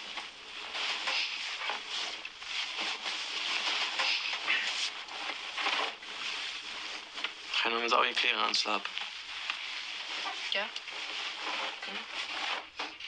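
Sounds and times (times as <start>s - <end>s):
bedsheets rustling: 0.0s - 13.0s.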